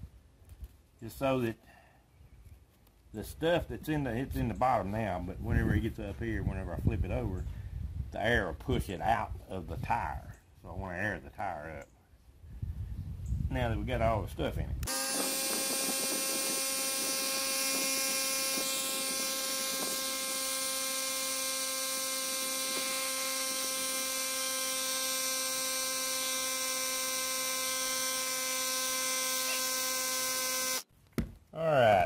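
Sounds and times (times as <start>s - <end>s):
air compressor running: 14.8s - 30.8s.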